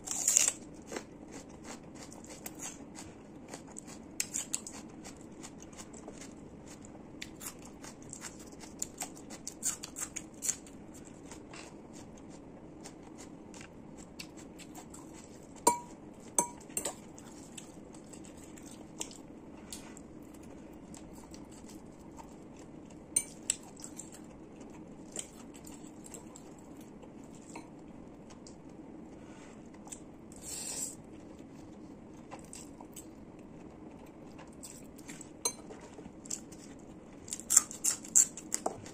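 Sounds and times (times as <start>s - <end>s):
steady low hum: 0.0s - 38.9s
fork clinking against ceramic bowl: 15.7s - 17.0s
chewing and mouth noises: 31.3s - 38.9s.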